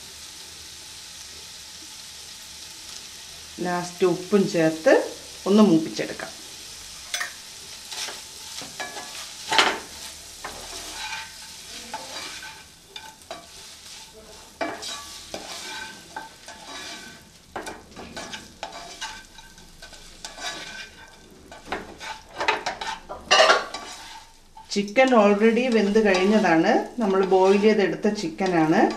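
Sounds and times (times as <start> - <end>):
chicken sizzling in pan: 0.0 - 28.9
spatula scraping pan: 6.1 - 28.9.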